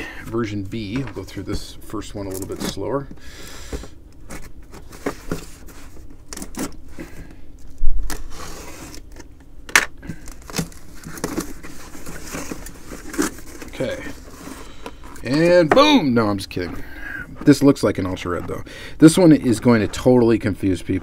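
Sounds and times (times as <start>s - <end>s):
cardboard taps scrapes and rustles: 3.7s - 6.7s.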